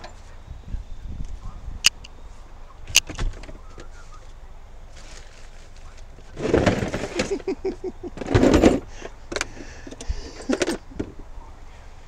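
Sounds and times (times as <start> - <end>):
tools clattering and scraping: 6.2 - 7.5, 8.1 - 10.8.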